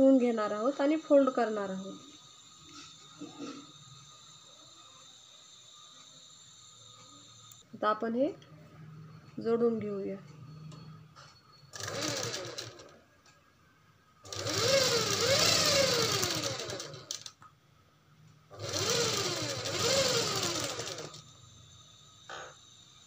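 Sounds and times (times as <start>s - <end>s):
sewing machine stitching: 11.8s - 13.0s, 14.3s - 17.3s, 18.6s - 21.2s.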